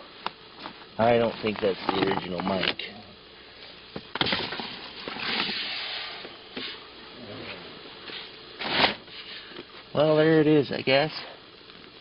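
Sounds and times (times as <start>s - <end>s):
rustling scrape: 4.3s - 6.8s, 7.4s - 9.5s.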